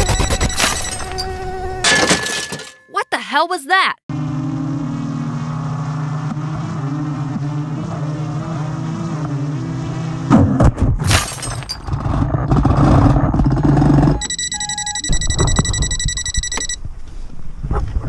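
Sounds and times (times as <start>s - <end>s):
high electronic tone: 0.0s - 1.5s, 14.0s - 16.8s.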